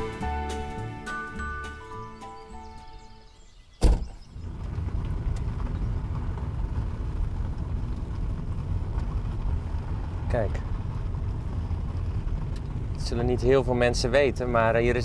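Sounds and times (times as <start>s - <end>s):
vehicle door shutting: 3.8s - 5.5s
tyre and road rumble: 3.8s - 15.0s.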